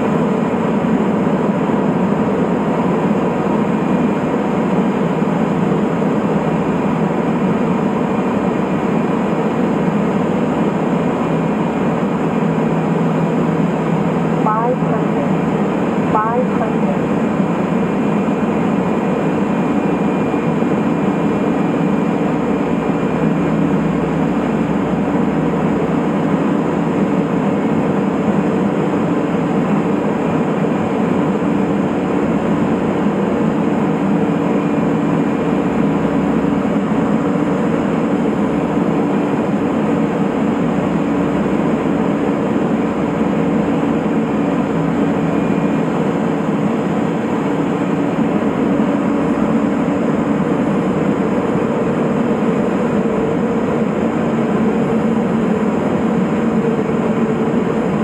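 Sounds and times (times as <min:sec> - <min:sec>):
aircraft engine and propeller drone: 0:00.0 - 0:58.0.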